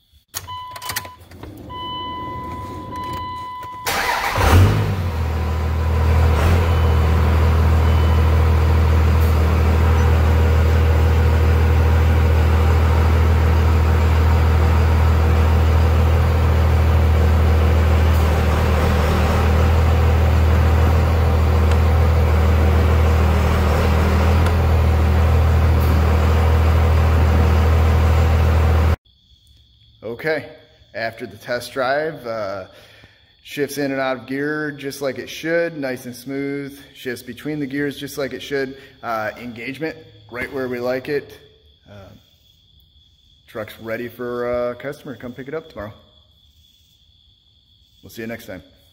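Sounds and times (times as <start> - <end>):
engine idling with low hum: 3.4 - 29.0.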